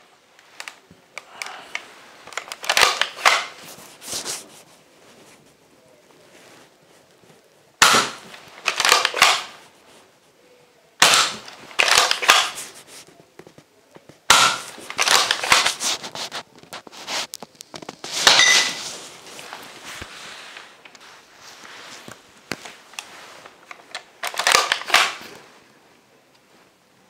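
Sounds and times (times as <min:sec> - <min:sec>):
blaster clicking and clattering: 0:02.3 - 0:03.6, 0:07.8 - 0:09.5, 0:11.0 - 0:12.6, 0:14.3 - 0:15.8, 0:23.8 - 0:25.2.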